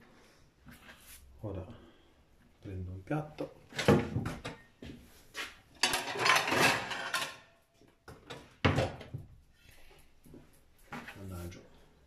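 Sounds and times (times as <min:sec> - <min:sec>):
plate clattering: 0:05.8 - 0:07.5.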